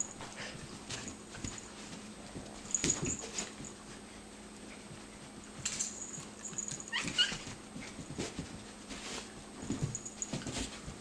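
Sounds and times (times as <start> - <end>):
animals scuffling: 0.0 - 11.0
paws thudding on carpet: 0.2 - 4.0, 4.9 - 11.0
animal yelping: 6.9 - 7.4.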